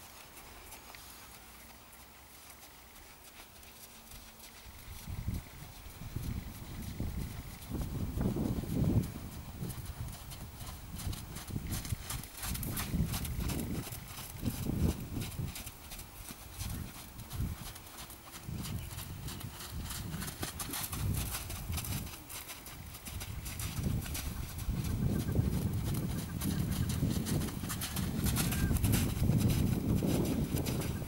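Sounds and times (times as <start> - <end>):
horse hoofbeats on sand: 0.0 - 31.0.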